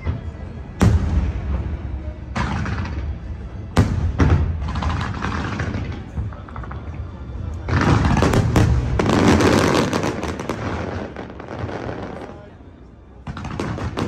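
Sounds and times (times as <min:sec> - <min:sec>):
fireworks bangs and crackle: 0:00.0 - 0:12.6, 0:13.2 - 0:14.0.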